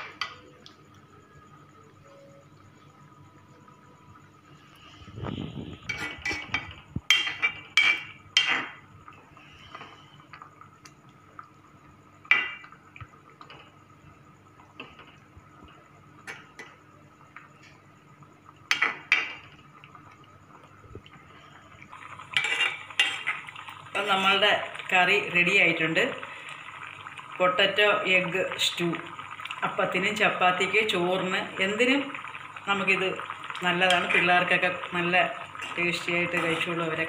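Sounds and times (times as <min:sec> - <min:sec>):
spoon clinking against metal pot: 0:05.9 - 0:08.6.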